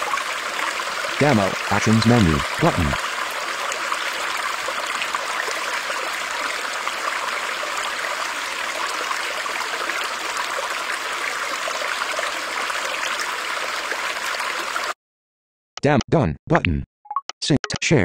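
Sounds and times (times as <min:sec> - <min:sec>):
hissy water noise: 0:00.0 - 0:14.9.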